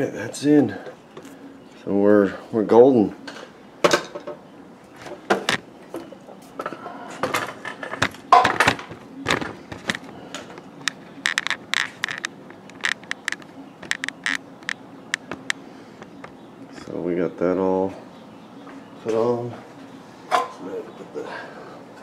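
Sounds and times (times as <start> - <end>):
hands handling small parts: 8.7 - 14.4.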